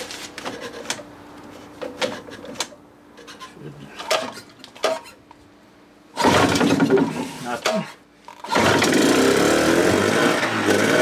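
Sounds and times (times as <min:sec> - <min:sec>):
outboard recoil starter pulled: 0:06.2 - 0:07.1, 0:08.4 - 0:09.3.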